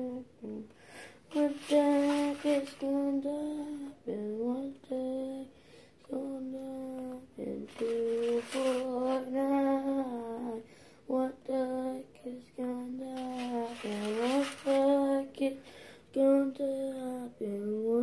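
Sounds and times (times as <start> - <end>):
child humming a wordless tune: 0.0 - 0.7.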